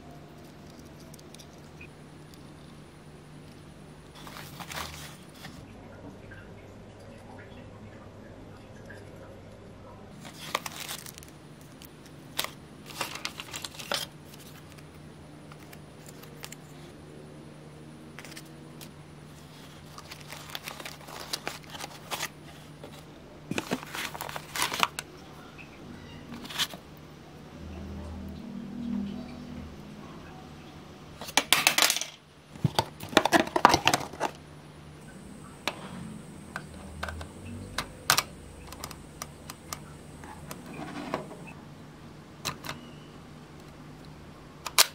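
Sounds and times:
faint low hum: 0.0 - 44.9
packaging crinkling: 4.1 - 5.6, 10.2 - 14.8, 19.4 - 25.0
plastic parts clicking: 44.6 - 44.9.

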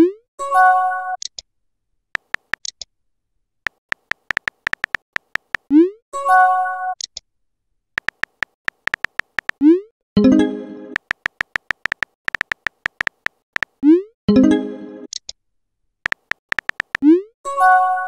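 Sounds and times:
phone keyboard clicks: 2.2 - 2.8, 3.7 - 5.7, 8.0 - 9.6, 11.0 - 13.8, 16.0 - 17.0.

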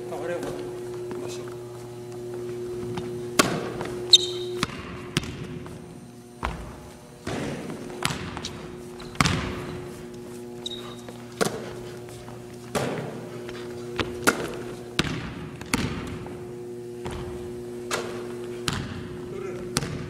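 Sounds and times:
steady low hum: 0.0 - 20.0
basketball bouncing on wooden floor: 2.9 - 5.8, 6.4 - 9.9, 14.0 - 16.4, 17.0 - 17.4, 18.0 - 20.0.

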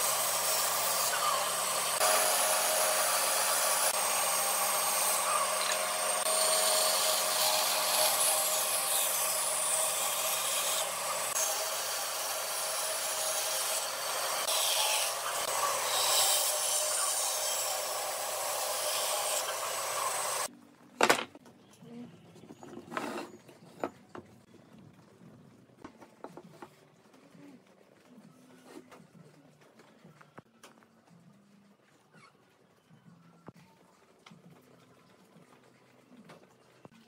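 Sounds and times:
band saw cutting wood: 0.0 - 20.5
wooden pieces knocking on workbench: 21.0 - 21.4.

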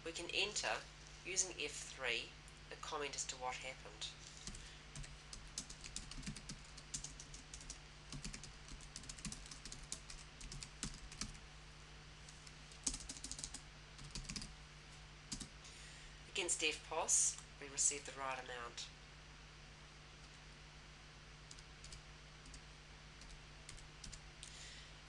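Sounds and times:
computer keyboard typing: 4.4 - 11.4, 12.8 - 14.5, 15.3 - 15.5, 21.5 - 22.6, 23.2 - 24.2.

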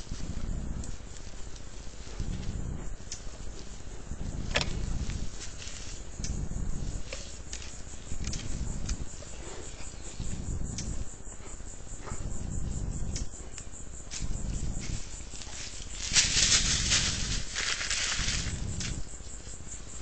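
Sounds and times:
insect buzzing: 0.0 - 20.0
low rumbling: 0.0 - 20.0
light ticks: 3.0 - 3.3, 6.2 - 6.4, 10.7 - 11.0, 13.1 - 13.7.

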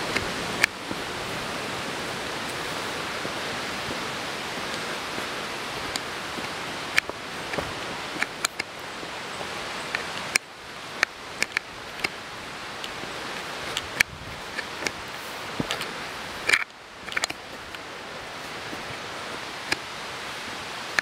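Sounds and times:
steady rushing noise: 0.0 - 21.0
sharp clicks and ticks: 9.9 - 12.2.

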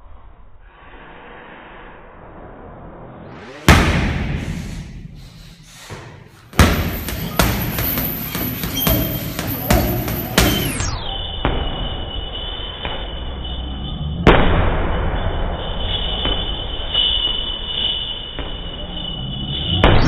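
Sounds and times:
thin high tone: 4.3 - 14.2, 15.1 - 20.0
gloves thudding into punching bag: 5.9 - 10.7.

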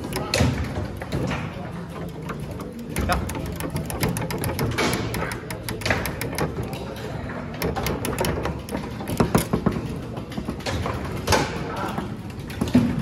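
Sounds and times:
foosball ball knocking: 0.0 - 11.6
steel rods clacking: 0.0 - 11.6.

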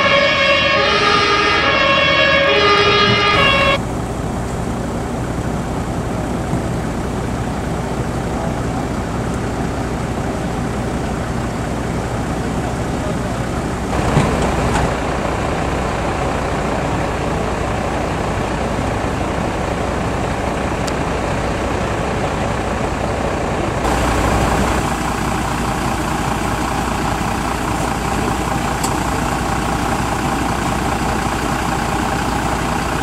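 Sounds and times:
truck diesel engine idling: 0.0 - 33.0.

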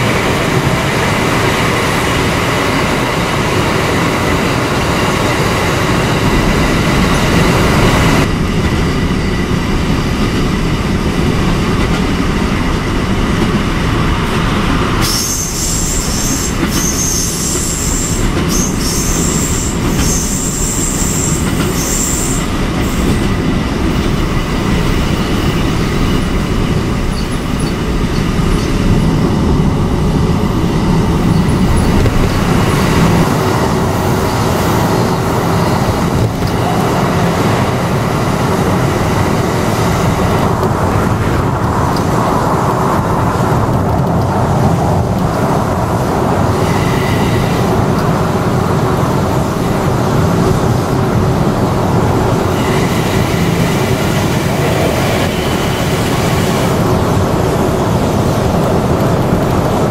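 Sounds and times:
train wheels clattering on rails: 0.0 - 59.9
high-pitched train squeal: 15.0 - 23.4, 30.8 - 37.6, 46.6 - 47.8, 52.4 - 56.8.

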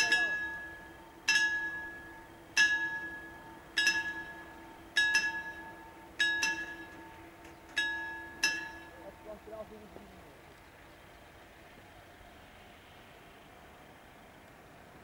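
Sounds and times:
level crossing warning bell: 0.0 - 10.0
faint steady hum: 0.0 - 15.0.

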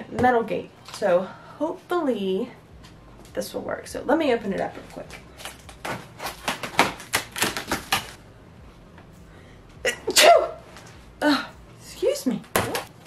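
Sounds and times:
blade slitting packing tape: 5.4 - 8.2
woman sneezing: 9.8 - 10.6.

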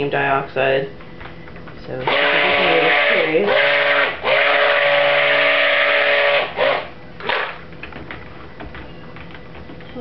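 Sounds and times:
stick blender motor whine: 2.0 - 7.6.

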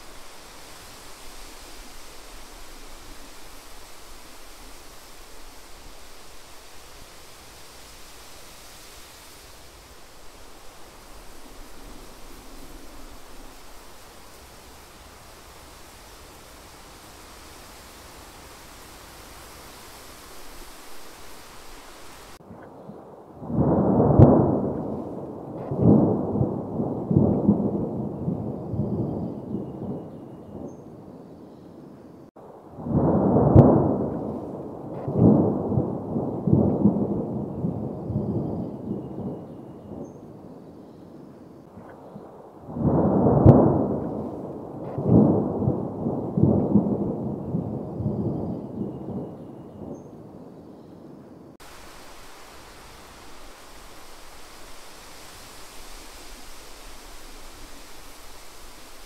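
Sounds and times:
steady hiss: 0.0 - 27.6, 49.1 - 59.0.

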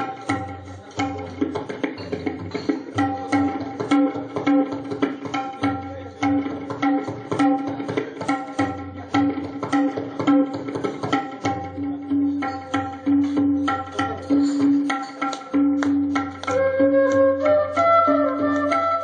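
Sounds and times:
tabla playing rhythm: 0.0 - 19.0.

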